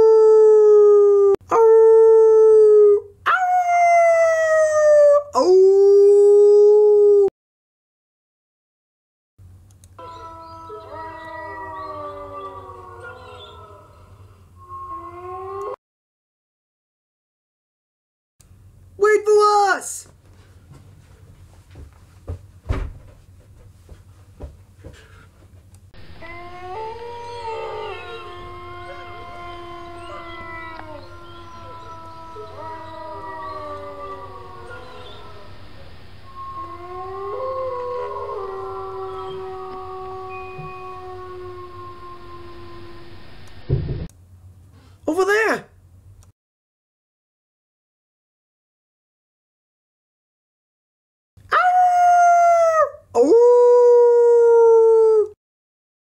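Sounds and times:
long drawn-out howls: 0.0 - 7.3, 10.0 - 15.8, 26.0 - 43.5
knocks and thumps in a room: 20.7 - 25.7.

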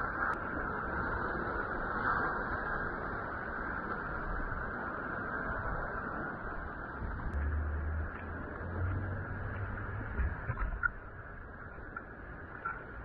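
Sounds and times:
wind: 0.0 - 13.0
wind buffeting microphone: 0.0 - 13.0.

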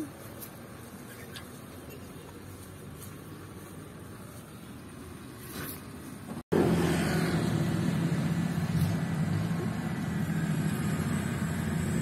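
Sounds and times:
combine harvester engine drone: 6.5 - 12.0.

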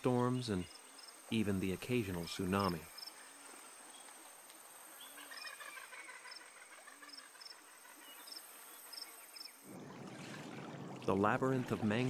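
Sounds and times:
insect chirps: 0.3 - 9.7
high insect drone: 0.6 - 9.7.

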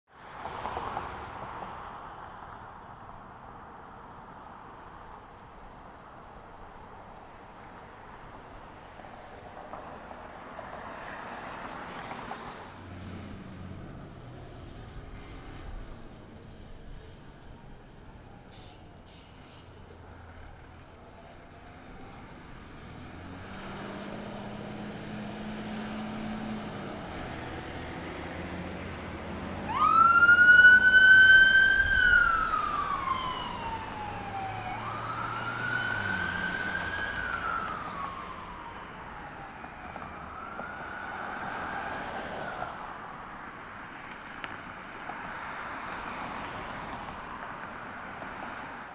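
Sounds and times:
passing traffic: 0.1 - 48.9
heavy truck engine: 12.8 - 30.2
fire engine siren wailing: 21.4 - 42.7.

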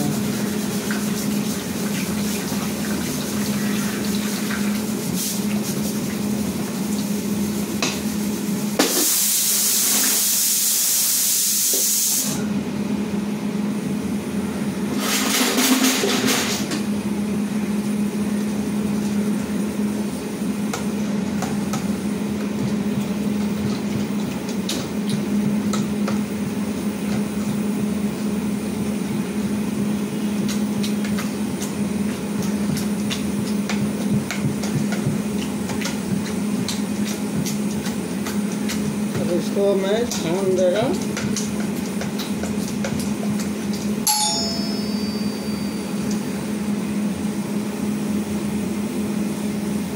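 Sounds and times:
steady low hum: 16.6 - 49.9.

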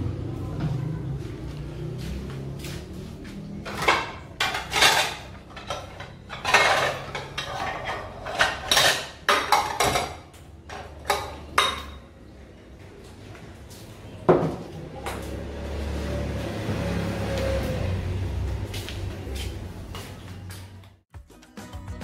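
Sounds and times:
dishes and cutlery clattering: 3.6 - 12.2.

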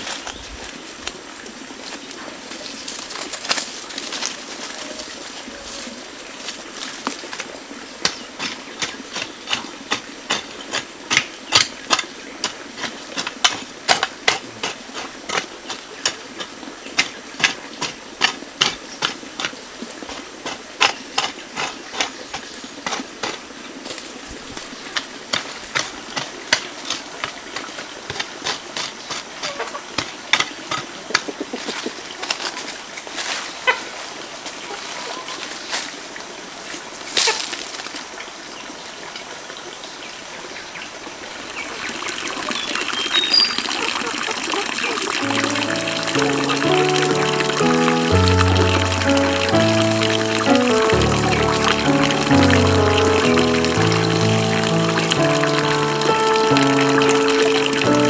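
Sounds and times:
hand tool striking: 8.0 - 16.2.

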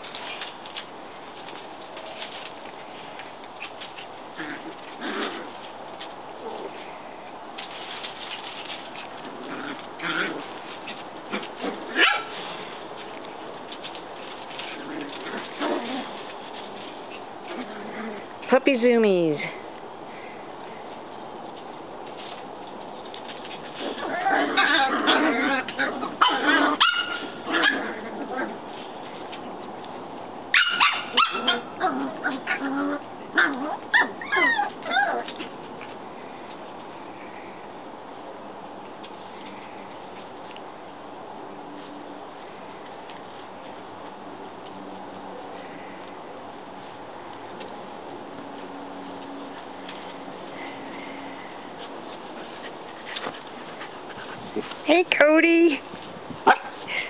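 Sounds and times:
paws scuffling in dry leaves: 0.0 - 18.4, 19.6 - 54.9
dogs yipping and whining: 23.8 - 28.6, 30.5 - 35.4
puppy yips: 26.2 - 27.8, 30.5 - 31.6
dogs barking: 26.2 - 27.9, 30.5 - 31.7.

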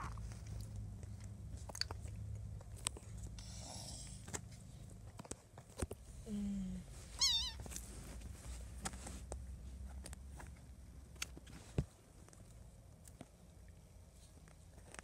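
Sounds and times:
kitten mewing: 7.2 - 7.7.

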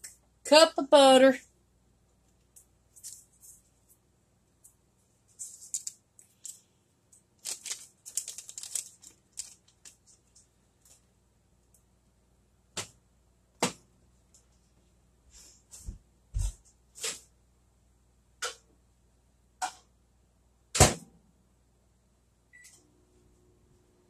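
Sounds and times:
paper wrapper crinkling and tearing: 5.4 - 6.7, 7.4 - 10.9.

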